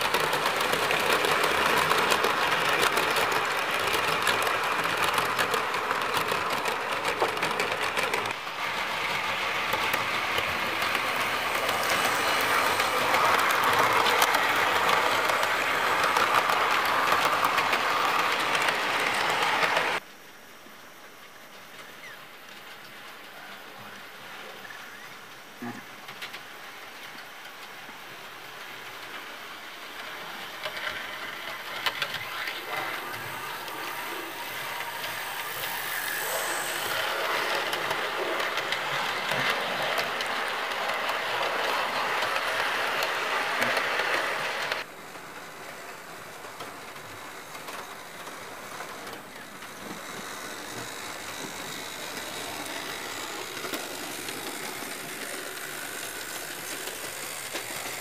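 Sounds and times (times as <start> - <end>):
model train motor hum: 0.0 - 20.0, 26.1 - 58.0
wheel noise on rails: 0.0 - 20.1, 21.2 - 58.0.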